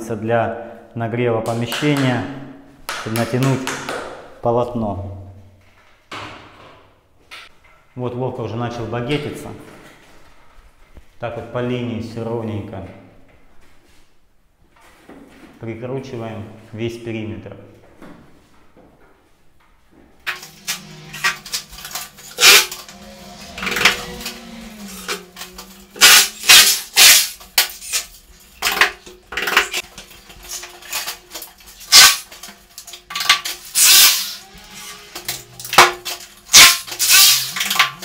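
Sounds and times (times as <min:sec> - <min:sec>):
power drills running: 0:20.3 - 0:27.5, 0:33.7 - 0:37.8.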